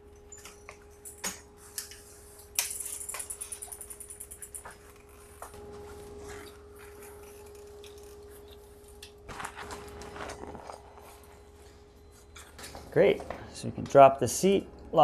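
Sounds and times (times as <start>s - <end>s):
folding bicycle clicks and rattles: 0.0s - 13.9s
metal clatter of bicycle stem: 0.3s - 5.4s.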